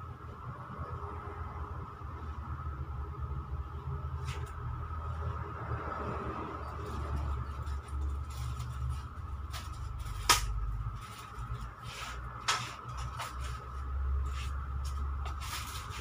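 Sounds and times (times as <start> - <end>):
steady low hum: 0.0 - 16.0
plastic packs rustling: 6.8 - 16.0.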